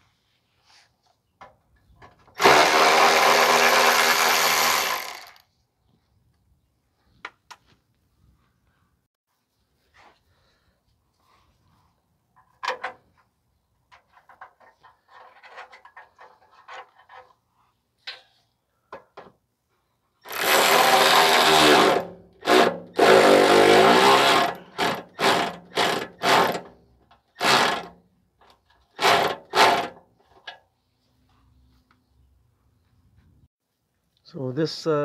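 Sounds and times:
power tool driving a nut: 0:02.4 - 0:05.5, 0:20.2 - 0:26.7, 0:27.3 - 0:28.0, 0:28.9 - 0:30.0.

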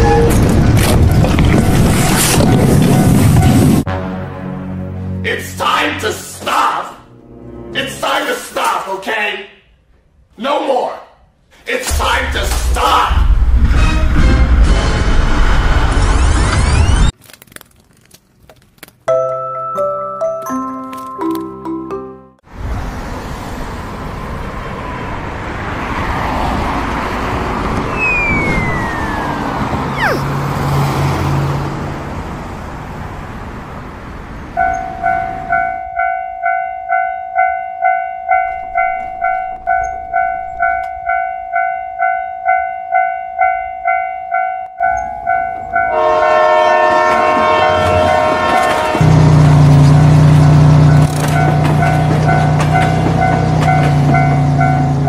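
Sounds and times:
diesel locomotive horn: 0:00.0 - 0:00.7, 0:03.5 - 0:05.2, 0:45.9 - 0:55.0
level crossing warning bell: 0:19.1 - 0:22.2, 0:34.6 - 0:48.9, 0:50.3 - 0:55.0
rushing noise: 0:26.9 - 0:31.5.

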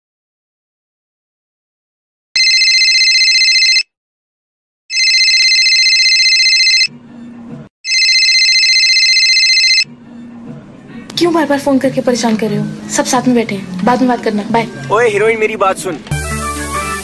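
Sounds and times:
phone ringing trilling bell: 0:02.4 - 0:03.8, 0:04.9 - 0:06.9, 0:07.9 - 0:09.9.

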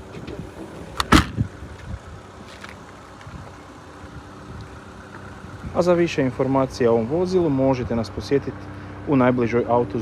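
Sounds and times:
car tailgate click: 0:00.9 - 0:01.4.

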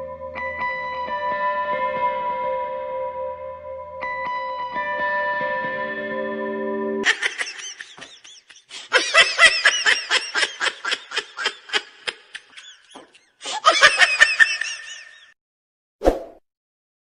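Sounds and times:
squeaky cartoon laughter: 0:07.0 - 0:15.4.

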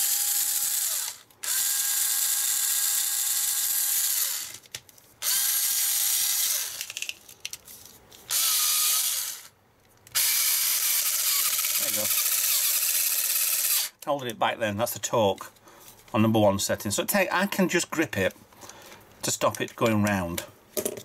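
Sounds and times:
electric screwdriver motor whining: 0:00.0 - 0:04.6, 0:05.2 - 0:06.9, 0:08.3 - 0:09.5, 0:10.1 - 0:14.0.

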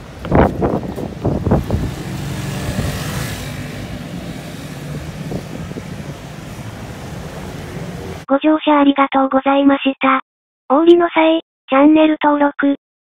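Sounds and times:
traffic hiss on wet road: 0:00.0 - 0:08.2
wind buffeting microphone: 0:00.0 - 0:08.2.

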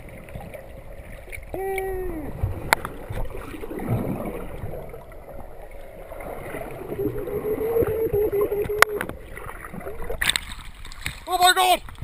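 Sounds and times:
underwater gurgling: 0:00.0 - 0:11.2
wavering hum-like tone: 0:06.1 - 0:09.9.

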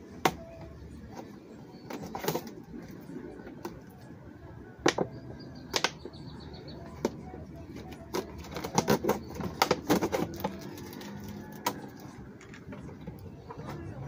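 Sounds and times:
plastic bottle crackling: 0:08.0 - 0:12.0.

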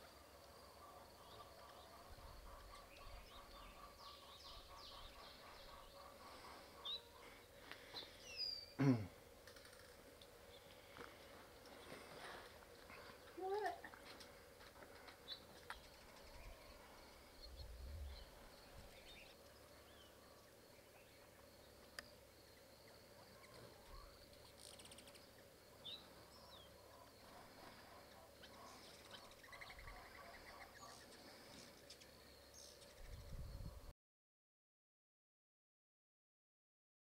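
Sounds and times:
high insect hum: 0:00.0 - 0:33.9
bird chirps: 0:00.8 - 0:07.3, 0:27.9 - 0:33.8
bird trill: 0:00.9 - 0:07.2, 0:28.0 - 0:31.1.

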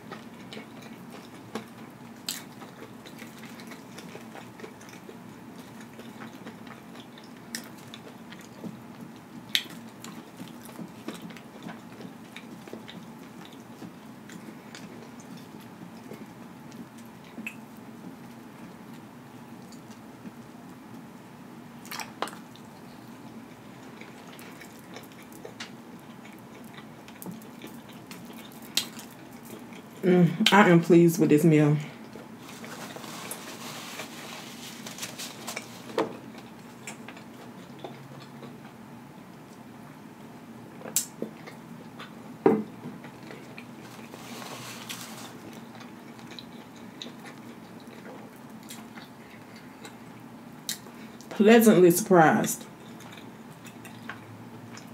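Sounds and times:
chewing food: 0:00.0 - 0:21.2, 0:21.8 - 0:30.0, 0:32.0 - 0:51.4, 0:52.6 - 0:54.9
soft rustle: 0:32.4 - 0:36.1, 0:43.8 - 0:45.6.

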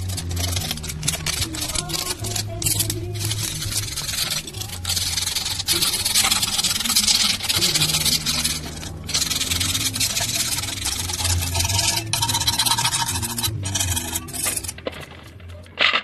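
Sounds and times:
steel blade scraping rust: 0:00.0 - 0:15.3.

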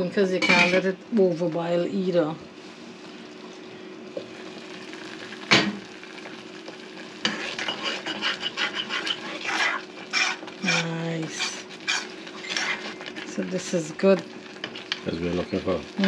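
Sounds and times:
metal spoon scraping a pot: 0:07.2 - 0:13.1.

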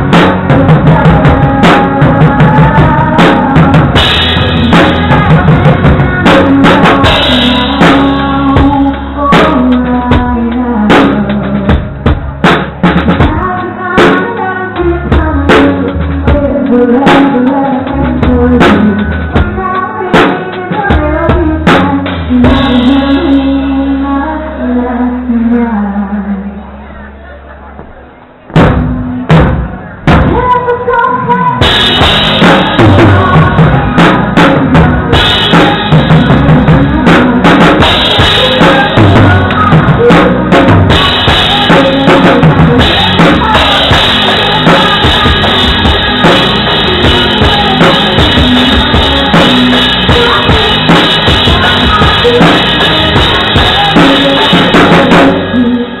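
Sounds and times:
drum kit played hard: 0:00.0 - 0:24.0, 0:28.5 - 0:56.0
live band playing: 0:00.0 - 0:25.6, 0:28.2 - 0:56.0.

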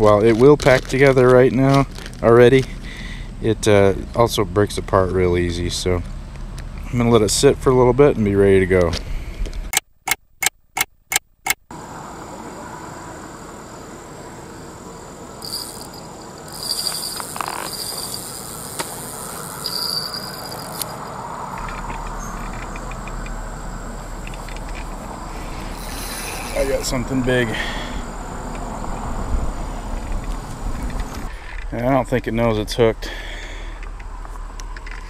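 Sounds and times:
insects buzzing: 0:11.7 - 0:35.0.

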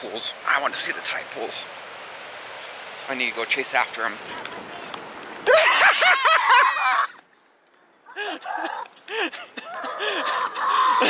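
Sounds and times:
girls laughing: 0:05.4 - 0:07.2, 0:08.1 - 0:11.0.

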